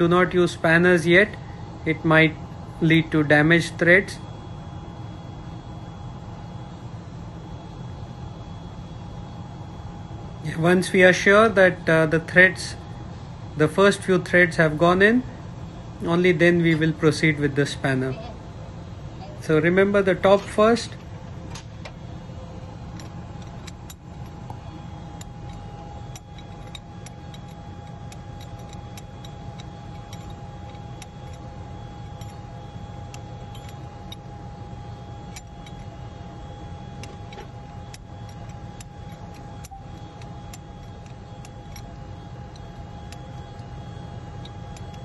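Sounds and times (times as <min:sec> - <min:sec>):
engine room machinery drone: 0:00.0 - 0:45.0
high whine: 0:10.3 - 0:45.0
metallic clicks of pipe fittings: 0:23.0 - 0:24.6, 0:25.2 - 0:31.4, 0:33.1 - 0:34.2, 0:35.2 - 0:35.9, 0:37.0 - 0:43.7, 0:44.4 - 0:45.0.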